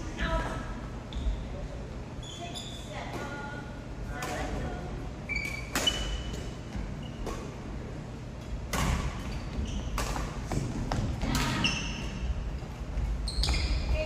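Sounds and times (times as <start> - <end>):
sneakers squeaking on gym floor: 1.1 - 1.5, 2.2 - 3.5, 5.2 - 7.6, 8.8 - 14.0.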